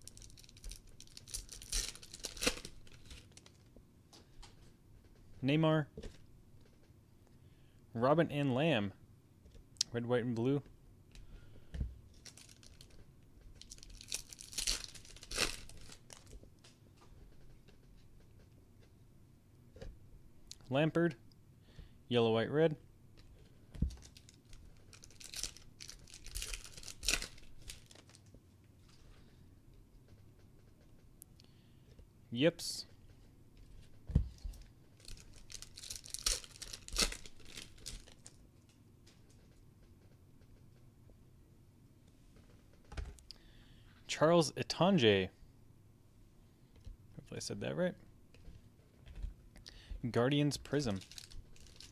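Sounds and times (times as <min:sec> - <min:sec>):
foil wrapper crinkling: 0:00.0 - 0:03.6, 0:12.2 - 0:13.0, 0:13.6 - 0:16.4, 0:23.9 - 0:28.3, 0:35.0 - 0:38.4, 0:50.7 - 0:51.9.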